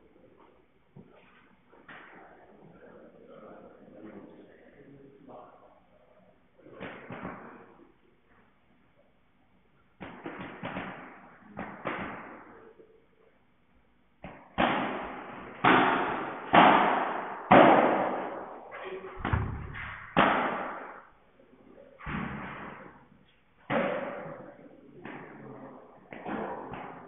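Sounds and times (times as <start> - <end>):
ball bouncing: 19.2 - 21.0.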